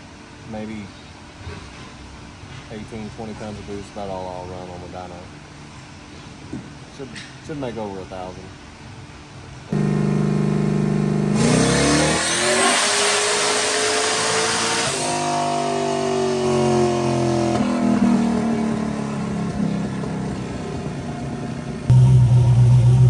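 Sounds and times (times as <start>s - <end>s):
race car engine revving: 9.7s - 23.0s.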